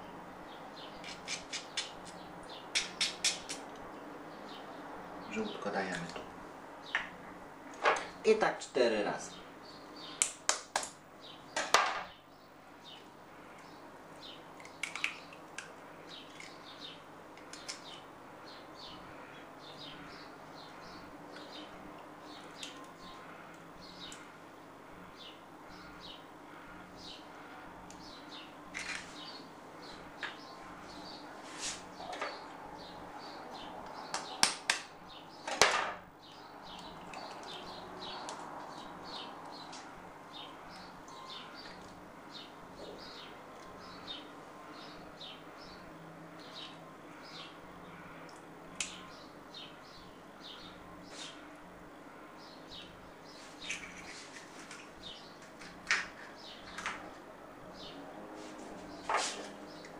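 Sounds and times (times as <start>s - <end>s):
small birds chirping: 0.0s - 59.9s
eggshell cracking: 14.6s - 15.7s.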